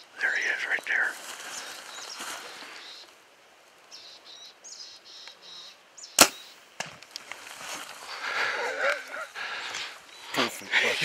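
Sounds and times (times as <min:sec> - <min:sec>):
small birds chirping: 0:00.0 - 0:03.2, 0:03.8 - 0:11.0
bow releasing crack: 0:06.2 - 0:08.0.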